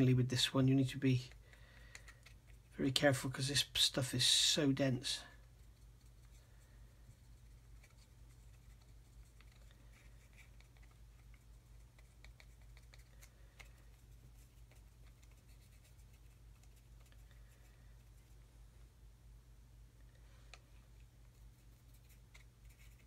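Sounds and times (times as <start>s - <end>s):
steady low hum: 0.0s - 23.0s
paintbrush ticks and scratches: 4.3s - 18.5s, 20.5s - 23.0s.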